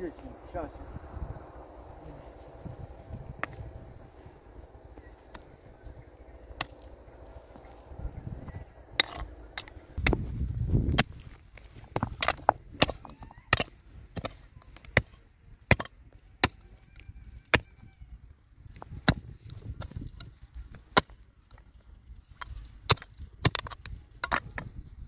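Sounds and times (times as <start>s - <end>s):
hand hoe chopping stony soil: 6.5s - 8.0s, 8.9s - 16.7s, 18.8s - 25.0s.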